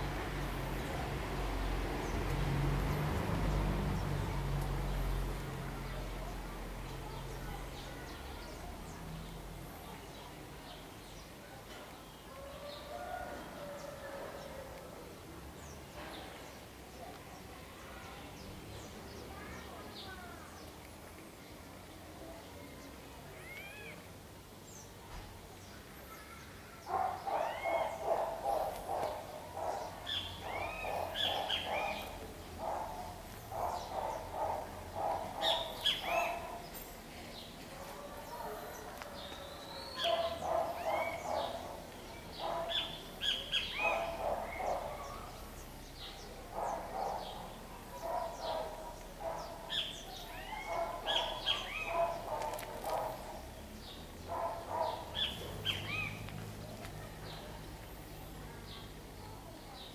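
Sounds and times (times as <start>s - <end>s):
birds trilling: 26.2s - 58.9s.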